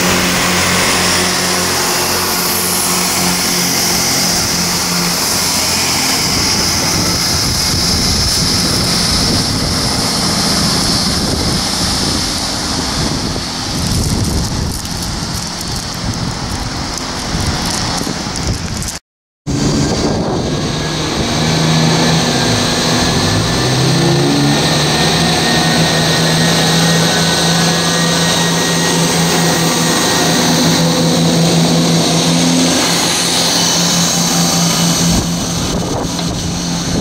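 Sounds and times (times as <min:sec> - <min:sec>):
diesel engine drone: 0:00.0 - 0:37.0
train wheels and air rushing: 0:19.5 - 0:37.0.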